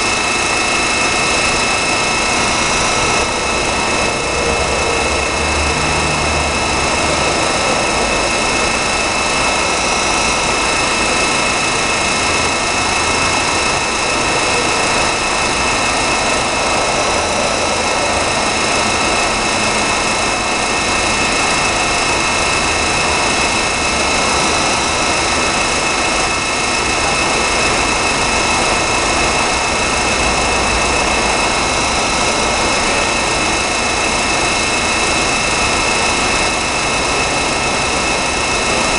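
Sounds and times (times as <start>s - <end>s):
high whining tones: 0.0s - 38.9s
milling machine drone: 0.0s - 38.9s
low rumble: 13.7s - 21.0s.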